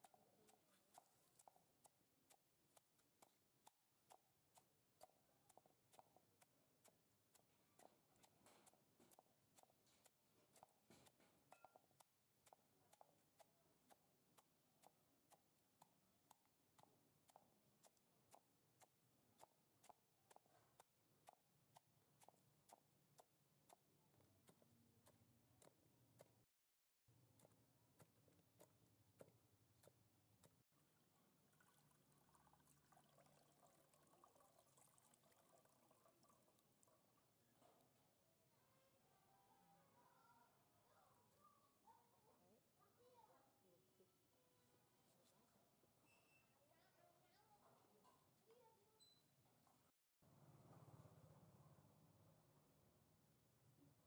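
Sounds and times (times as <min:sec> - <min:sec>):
faint regular ticks: 0:00.0 - 0:23.8
water trickling into bowl: 0:30.8 - 0:37.3.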